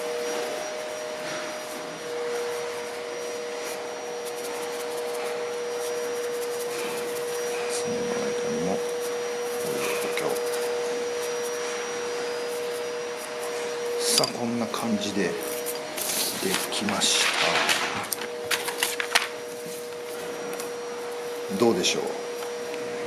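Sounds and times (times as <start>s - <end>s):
wooden fork rubbing: 0.3s - 11.7s, 15.4s - 16.8s.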